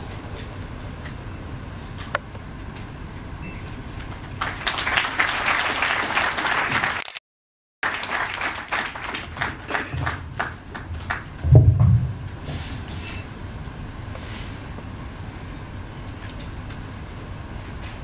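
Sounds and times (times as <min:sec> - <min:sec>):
audience applauding: 0:04.1 - 0:07.1, 0:07.8 - 0:11.4
low thump: 0:11.4 - 0:12.4.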